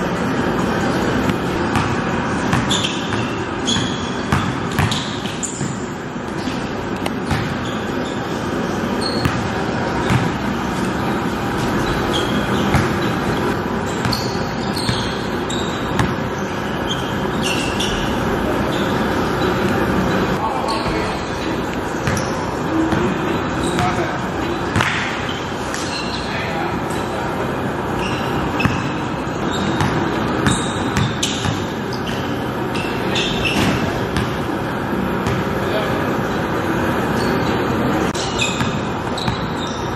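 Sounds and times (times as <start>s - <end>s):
sneaker squeaks: 0.0s - 39.9s
basketball bouncing: 0.7s - 7.7s, 9.1s - 15.2s, 15.9s - 16.3s, 22.0s - 22.3s, 24.7s - 25.2s, 29.6s - 32.2s, 33.1s - 35.6s, 38.1s - 39.5s
basketball bouncing on wooden floor: 1.2s - 5.8s, 7.1s - 7.6s, 9.2s - 10.4s, 12.6s - 13.1s, 29.7s - 31.6s.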